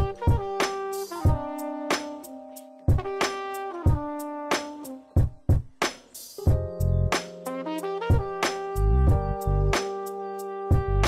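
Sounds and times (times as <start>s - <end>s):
drum beat: 0.0s - 2.2s, 2.9s - 7.5s, 8.1s - 10.0s, 10.7s - 11.0s
instrumental background music: 0.0s - 11.0s.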